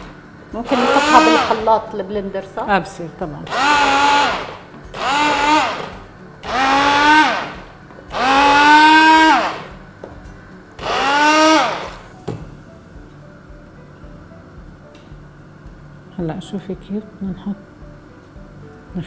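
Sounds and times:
stick blender motor whining: 0.0s - 1.6s, 3.5s - 9.7s, 10.8s - 12.1s.

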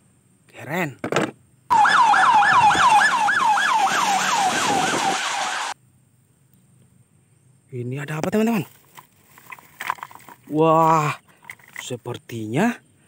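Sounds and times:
siren in fast yelp: 1.7s - 5.8s
traffic noise: 1.7s - 5.8s.

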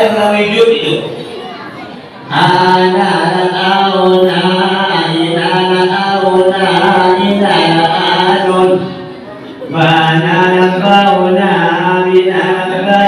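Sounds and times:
man chanting into microphone: 0.0s - 1.2s, 2.2s - 9.1s, 9.7s - 13.0s.

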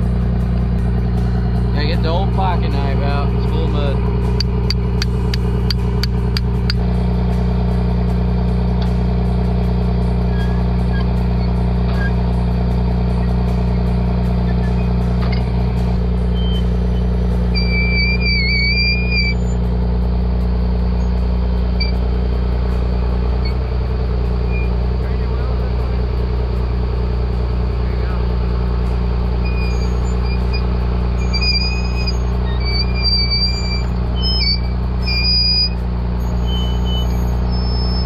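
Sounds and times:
engine idling: 0.0s - 38.0s
wavering whistle-like tone: 10.3s - 12.2s, 16.3s - 19.6s, 29.4s - 38.0s.

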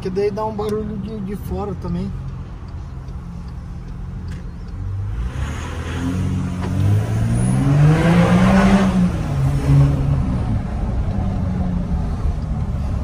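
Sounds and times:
diesel engine accelerating hard: 4.0s - 13.0s.

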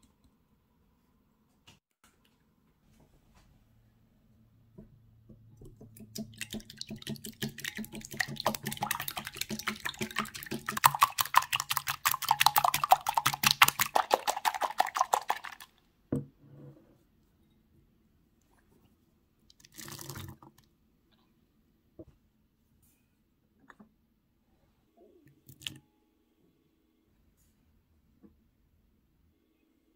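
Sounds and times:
whisk beating eggs in a bowl: 5.8s - 15.7s.

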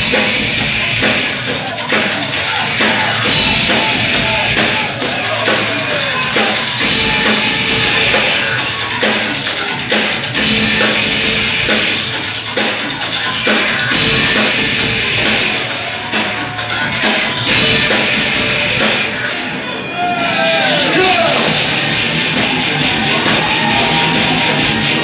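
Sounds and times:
metal band playing live: 0.0s - 25.0s
pounding drum beat: 0.0s - 25.0s.

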